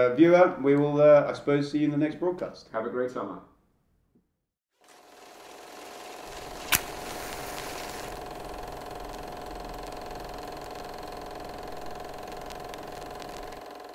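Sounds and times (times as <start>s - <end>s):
mechanical whirring hum: 5.6s - 13.9s.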